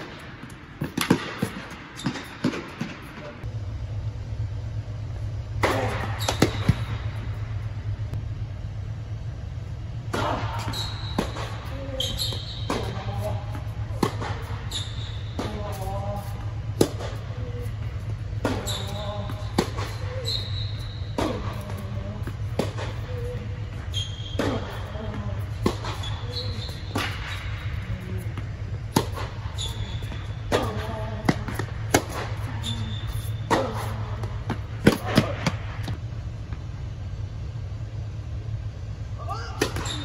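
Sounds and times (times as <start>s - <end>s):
racket hitting tennis ball: 0.0s - 3.2s, 5.6s - 7.1s, 10.1s - 36.0s
low hum: 0.0s - 40.0s
sneaker squeaks: 0.9s - 3.3s, 5.7s - 7.1s, 10.5s - 16.5s, 17.1s - 35.6s, 39.6s - 40.0s.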